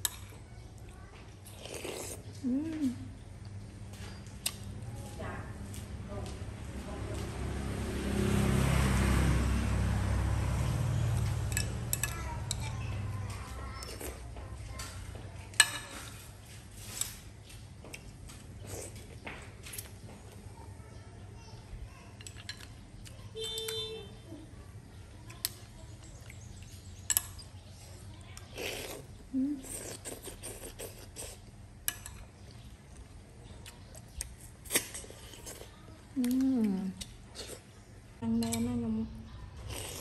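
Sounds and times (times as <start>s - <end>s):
vehicle passing by: 4.6s - 15.3s.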